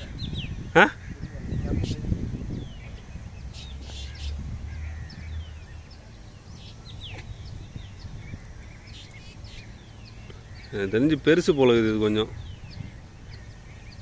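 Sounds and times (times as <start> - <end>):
birds chirping and whistling: 0.0 - 14.0.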